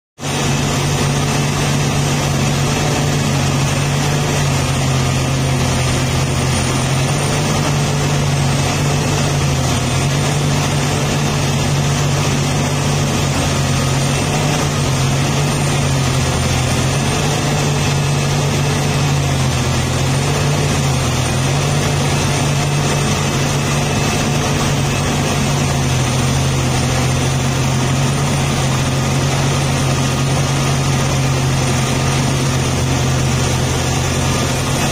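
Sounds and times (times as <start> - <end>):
excavator diesel engine droning: 0.2 - 34.9.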